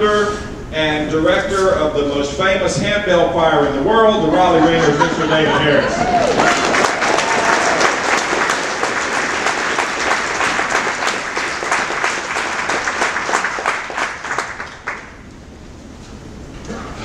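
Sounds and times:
large crowd applauding: 0:05.7 - 0:15.2.

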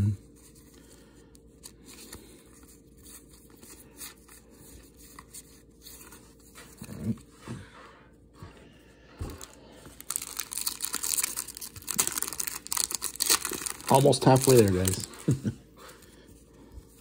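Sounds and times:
trading cards handled: 0:09.2 - 0:15.3
foil wrapper tearing: 0:09.4 - 0:15.4.

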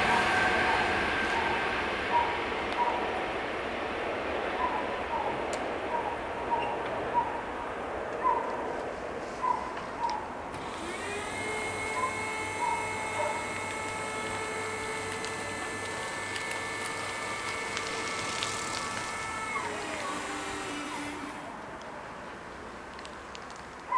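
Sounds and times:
barrier motors whining: 0:00.0 - 0:03.2, 0:10.5 - 0:22.2.

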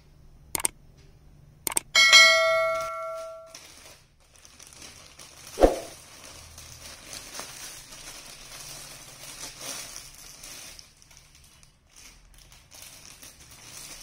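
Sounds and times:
mouse clicks: 0:01.7 - 0:01.9
bell ding: 0:02.0 - 0:03.5.

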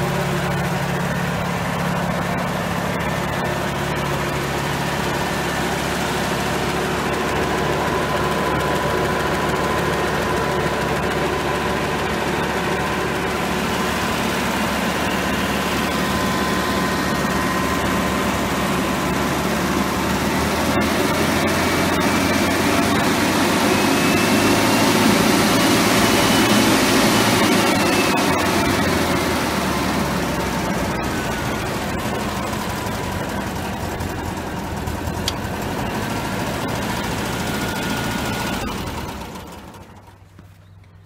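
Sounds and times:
gearbox whine: 0:00.0 - 0:41.0
tractor engine running: 0:00.0 - 0:41.0.

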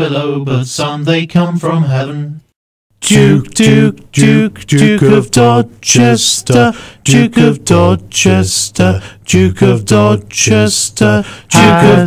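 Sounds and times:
voices singing in close harmony: 0:03.0 - 0:12.0.

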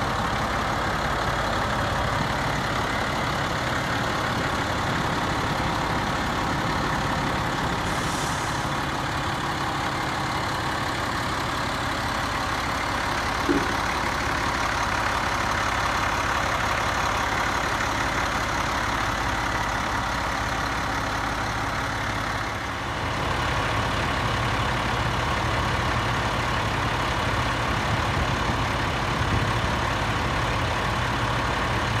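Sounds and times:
diesel engine idling: 0:00.0 - 0:32.0
engine knock: 0:09.2 - 0:32.0.

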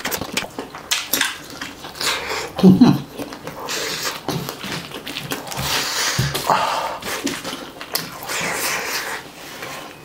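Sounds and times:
crackles and clicks: 0:00.0 - 0:02.2
wet chewing and lip smacking: 0:00.0 - 0:10.0.

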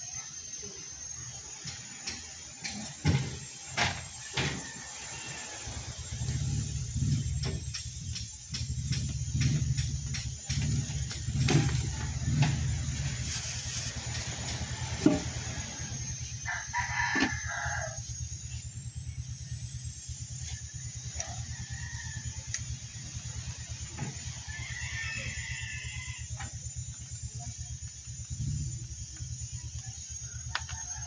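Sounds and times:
steady low hum: 0:00.0 - 0:31.0
rooster crowing: 0:04.0 - 0:07.2, 0:10.6 - 0:18.4, 0:20.5 - 0:26.6, 0:29.5 - 0:31.0.

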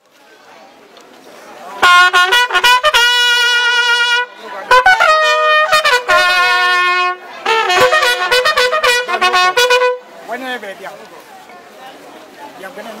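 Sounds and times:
brass horn notes: 0:01.8 - 0:10.2.

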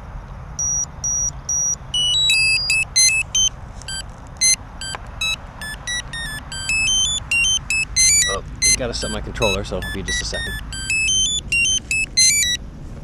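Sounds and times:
electronic startup beeps: 0:00.6 - 0:12.6.

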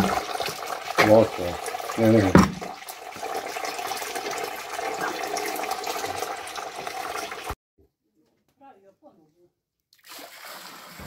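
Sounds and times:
juice pouring into a plastic bucket: 0:00.0 - 0:07.6, 0:09.9 - 0:11.0.

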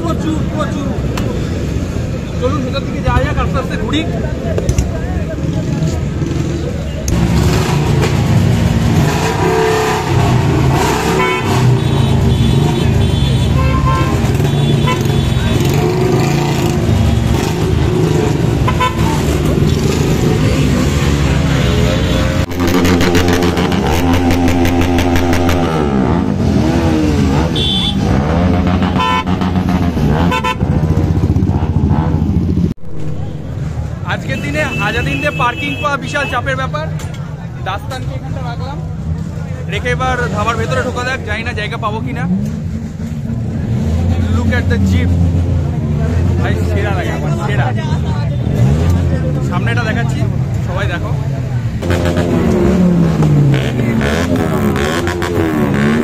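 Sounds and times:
motorcycle engines revving: 0:00.0 - 0:56.0
vehicle horn toots: 0:11.1 - 0:15.8, 0:18.6 - 0:19.4, 0:27.4 - 0:29.4, 0:30.2 - 0:30.7.

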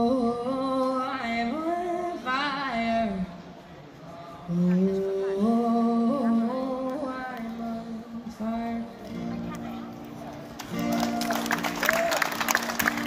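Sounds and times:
woman singing through amplifier: 0:00.0 - 0:03.5, 0:04.5 - 0:09.6.

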